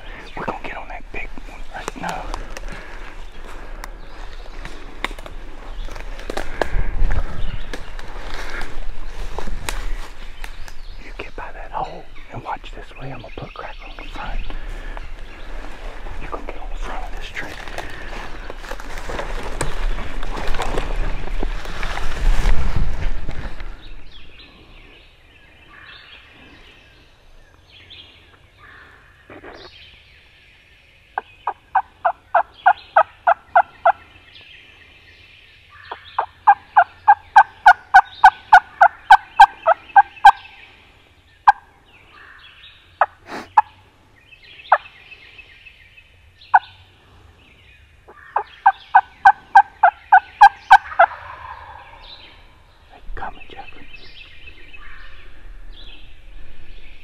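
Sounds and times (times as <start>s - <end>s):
songbirds singing faintly: 0.0s - 57.0s
turkey yelps: 49.2s - 52.0s.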